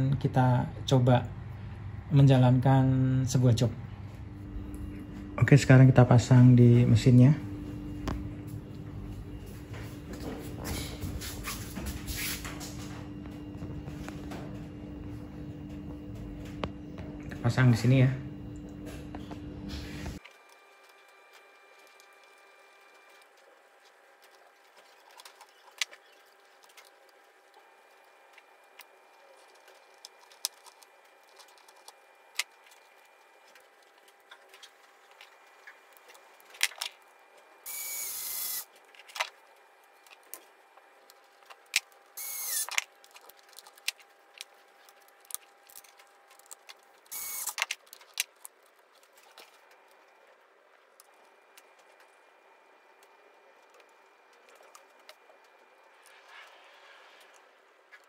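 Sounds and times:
cordless screwdriver whining: 37.7s - 38.7s, 42.2s - 42.8s, 47.1s - 47.8s.

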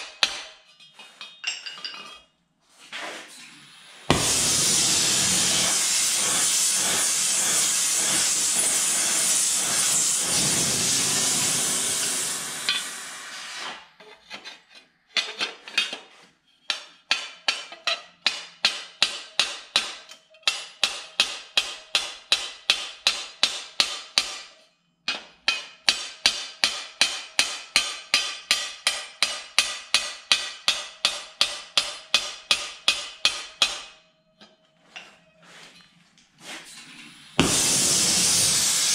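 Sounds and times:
hammer striking steel plate: 0.0s - 0.7s, 4.1s - 10.6s, 16.8s - 24.5s, 25.1s - 34.0s, 37.4s - 38.7s
loud steady hiss: 3.6s - 13.8s, 37.2s - 38.9s.

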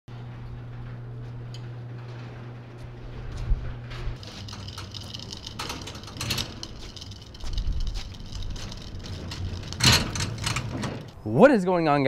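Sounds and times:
garage door opener humming: 0.1s - 11.3s
jack wheel rolling on concrete: 4.2s - 11.2s
trailer rattling and clanking: 4.2s - 11.2s.

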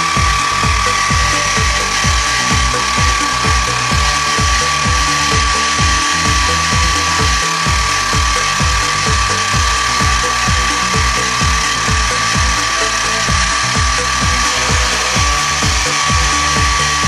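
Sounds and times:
low pulsing: 0.0s - 17.0s
milling machine spindle whining: 0.0s - 17.0s.

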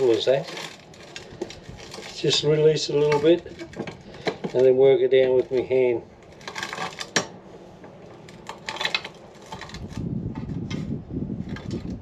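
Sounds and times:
gritty crunching of rock: 0.0s - 7.2s.

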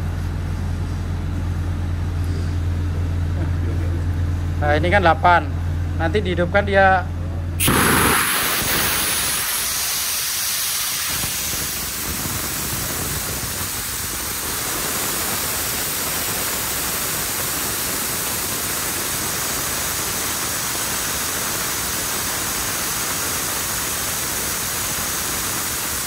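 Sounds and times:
compressed air hissing: 7.6s - 26.0s.

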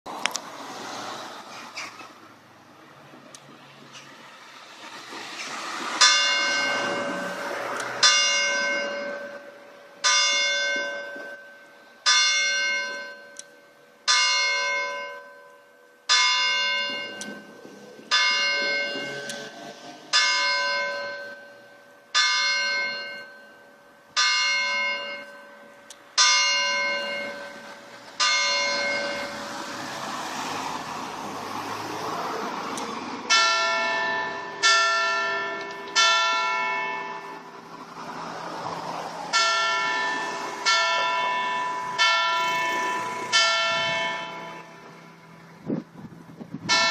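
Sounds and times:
church bell striking: 6.0s - 29.4s, 33.3s - 37.5s, 39.3s - 45.6s, 46.7s - 46.9s.

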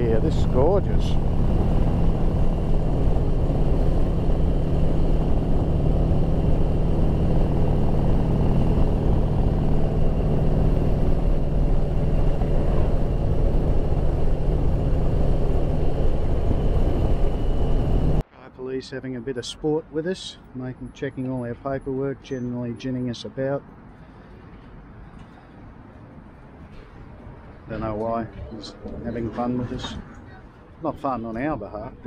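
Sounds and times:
motorcycle engine running: 0.0s - 18.2s
wind and road noise: 0.0s - 32.0s.

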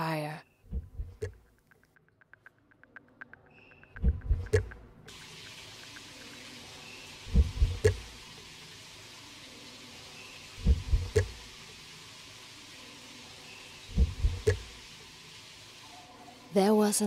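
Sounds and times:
low heavy thuds: 7.3s - 8.1s, 10.6s - 11.3s, 13.9s - 14.6s.

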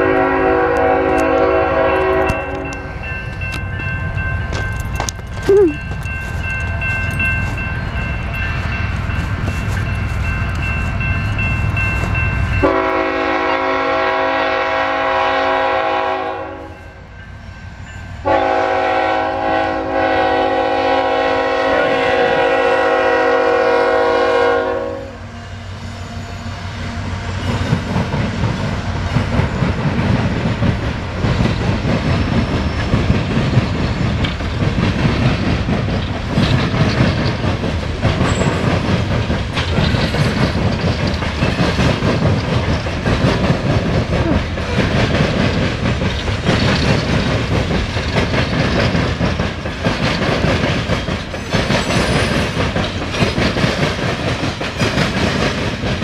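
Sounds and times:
locomotive air horn blasts: 0.0s - 2.9s, 12.6s - 16.8s, 18.2s - 25.4s
locomotive rumbling past: 0.0s - 56.0s
train cars clattering over rail joints: 27.4s - 56.0s.

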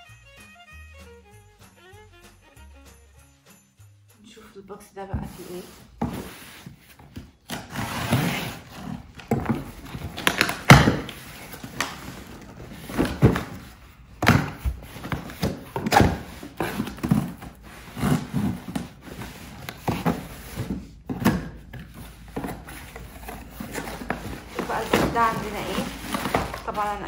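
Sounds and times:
cardboard box being cut open: 7.4s - 11.2s, 15.1s - 20.7s.

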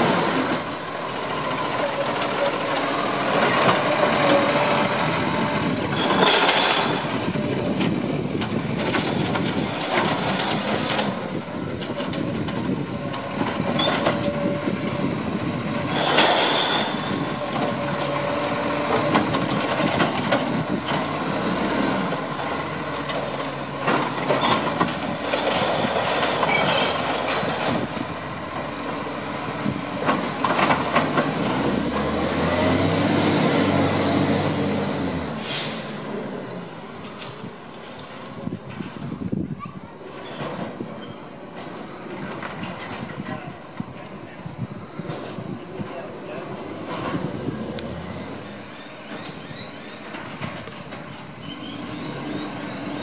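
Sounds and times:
diesel truck engine running: 1.3s - 36.4s
air brake hisses: 35.4s - 36.6s.

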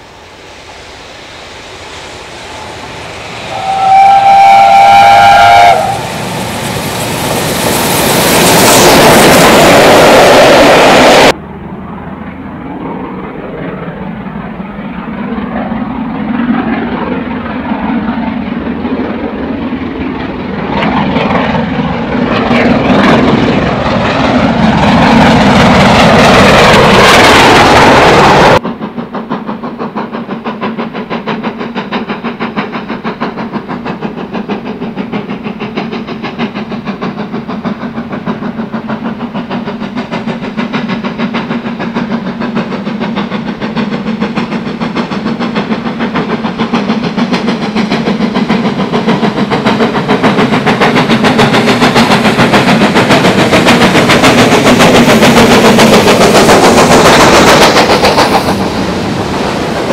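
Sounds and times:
loud even rushing noise: 0.0s - 3.8s
steam locomotive exhaust beats: 0.0s - 59.9s.

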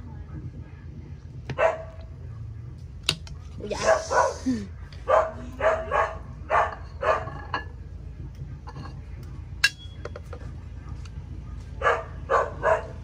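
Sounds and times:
dog barking: 1.5s - 2.0s, 3.8s - 4.4s, 5.0s - 7.5s, 11.5s - 13.0s.

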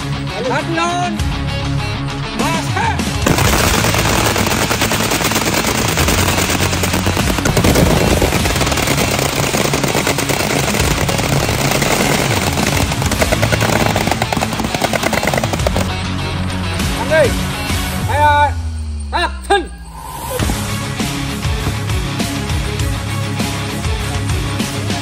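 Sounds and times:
rifles firing rapidly: 3.2s - 15.9s.

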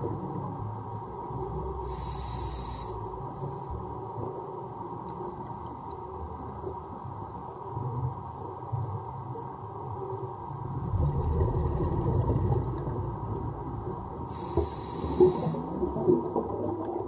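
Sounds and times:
muffled underwater rumble: 0.0s - 17.0s
brief hiss: 14.4s - 15.7s.

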